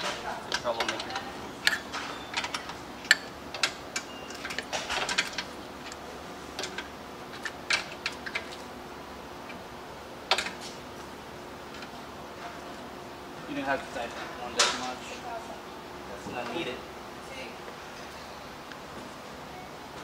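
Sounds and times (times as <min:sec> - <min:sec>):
wrench clinking on metal frame: 0:00.0 - 0:06.0.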